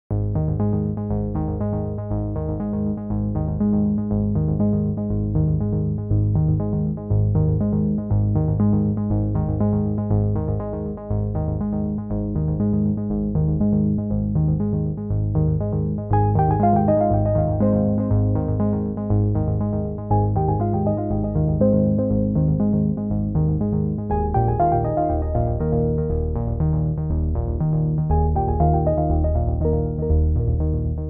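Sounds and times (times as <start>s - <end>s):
electronic music with steady beat: 16.2s - 19.5s, 20.1s - 23.0s, 28.1s - 30.7s.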